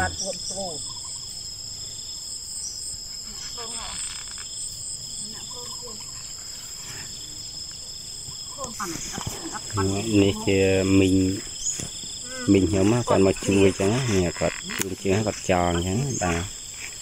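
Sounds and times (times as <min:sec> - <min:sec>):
shrill insect chorus: 0:00.0 - 0:17.0
faint voices talking: 0:08.5 - 0:11.5, 0:12.2 - 0:16.5.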